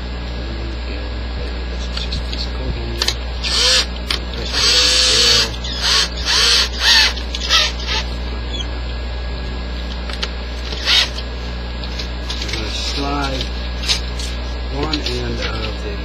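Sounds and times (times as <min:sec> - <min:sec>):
cordless drill motor whirring: 0:03.0 - 0:08.8, 0:10.1 - 0:15.7.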